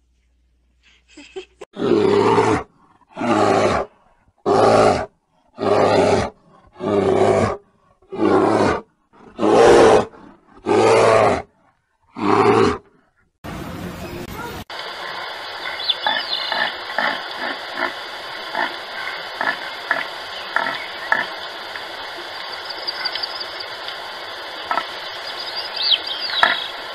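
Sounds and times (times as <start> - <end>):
bear roaring: 1.8 - 13.1.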